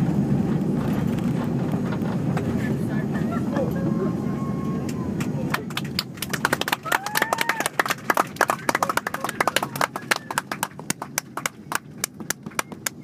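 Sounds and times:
low rumble of aircraft landing roll: 0.0s - 13.0s
passengers clapping: 4.8s - 13.0s.

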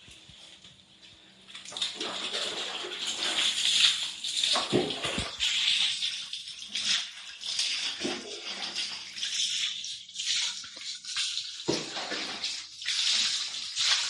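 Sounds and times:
water splashing on dog and tiles: 1.5s - 14.0s.

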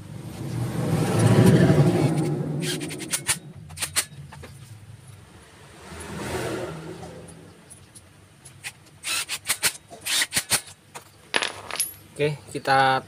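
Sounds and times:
engine-like hum: 0.0s - 9.8s
metallic clinks: 11.3s - 12.4s.

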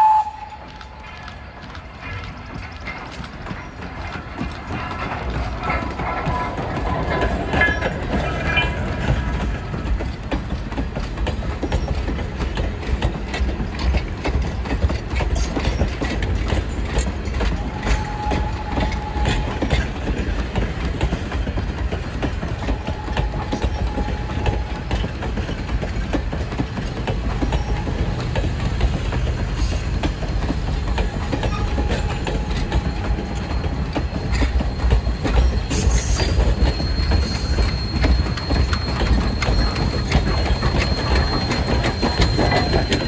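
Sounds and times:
train coaches rumbling past: 0.0s - 43.0s
wheels clicking over rail joints: 0.0s - 43.0s
high squeals: 31.1s - 43.0s.

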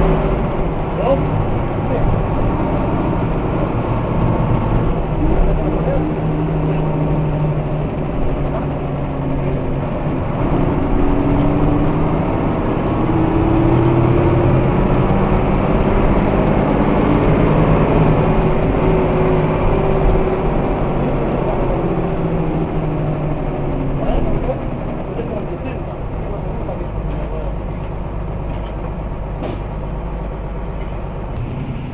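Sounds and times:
bus diesel engine from inside: 0.0s - 31.9s.

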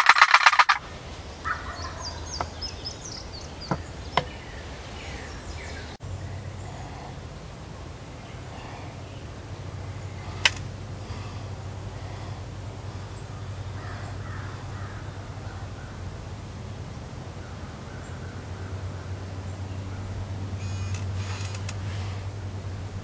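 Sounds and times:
sharp click: 0.0s - 0.8s, 10.4s - 10.7s
steady low hum: 0.0s - 23.0s
faint harsh animal calls: 1.4s - 4.1s, 6.2s - 7.3s, 8.2s - 16.1s, 17.3s - 22.4s.

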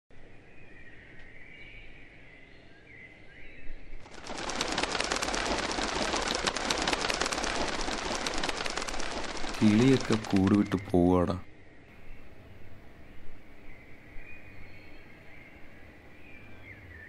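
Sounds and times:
dense crackling clatter: 4.1s - 10.8s.

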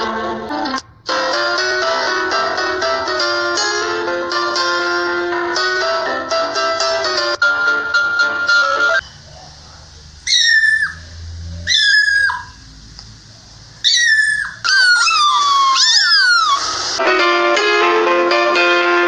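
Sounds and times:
plucked-string music: 0.0s - 9.0s, 17.0s - 19.0s
kitten meowing: 10.3s - 12.6s, 13.8s - 16.7s.

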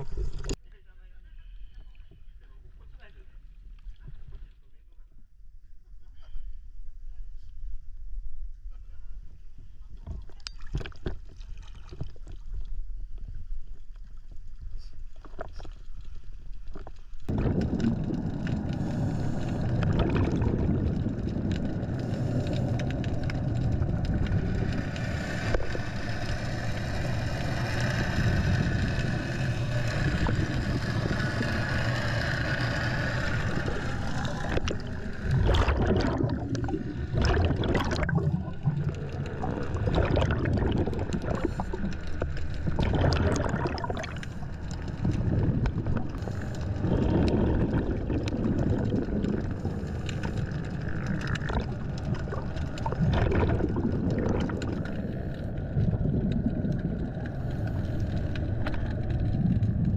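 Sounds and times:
muffled underwater rushing: 0.0s - 0.6s, 9.4s - 59.9s
water splashing at surface: 16.7s - 26.4s, 32.9s - 59.9s
gurgling exhaust bubbles: 17.2s - 59.9s.

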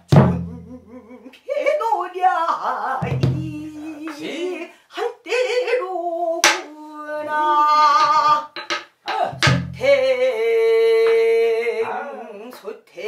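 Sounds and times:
woman singing with heavy vibrato: 0.1s - 13.0s.

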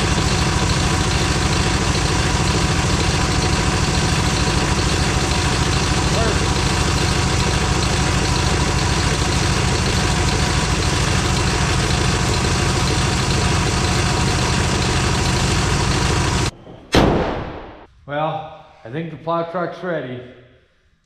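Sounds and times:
truck engine idling: 0.0s - 16.6s
sharp bang: 16.5s - 17.9s.

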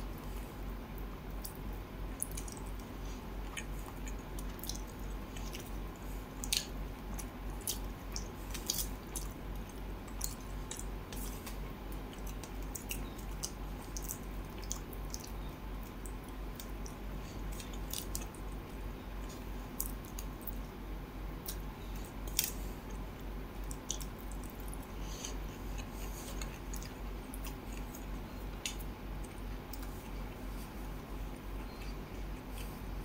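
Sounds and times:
steady low hum: 0.0s - 33.0s
fingers squishing food: 0.9s - 20.6s
mouth chewing: 23.6s - 30.2s, 31.5s - 32.9s.

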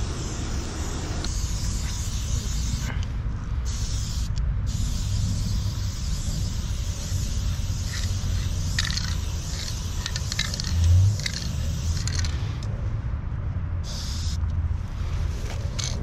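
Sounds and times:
spray paint can hissing: 0.0s - 3.0s, 3.6s - 12.7s, 13.8s - 14.4s, 15.4s - 16.0s
spray can metallic clicks and rattles: 3.6s - 12.7s, 15.5s - 16.0s.

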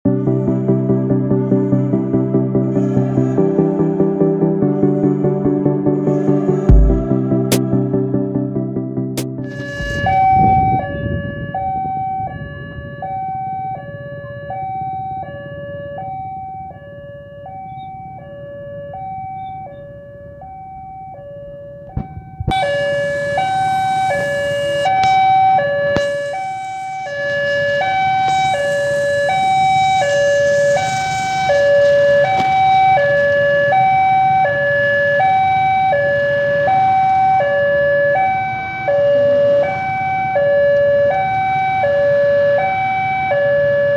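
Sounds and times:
two-tone crossing alarm: 3.4s - 43.9s
rushing noise: 26.0s - 32.6s.

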